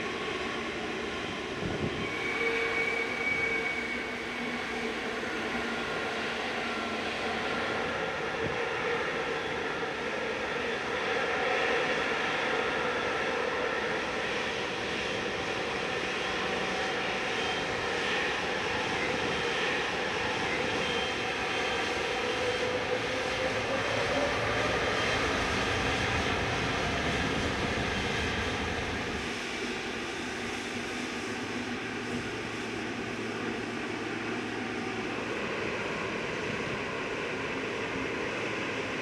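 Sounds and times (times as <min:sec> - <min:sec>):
jet engines whining: 0:11.8 - 0:39.0.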